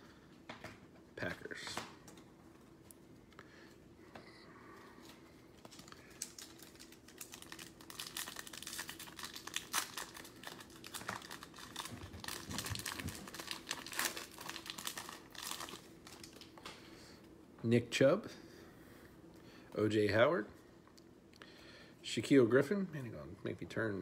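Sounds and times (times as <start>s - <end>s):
foil wrapper crinkling and tearing: 5.6s - 16.6s.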